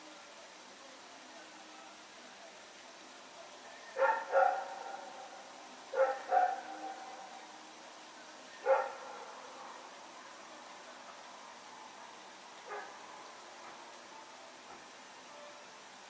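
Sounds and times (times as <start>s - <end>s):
dog barking: 4.0s - 7.3s, 8.6s - 9.8s, 12.7s - 13.0s.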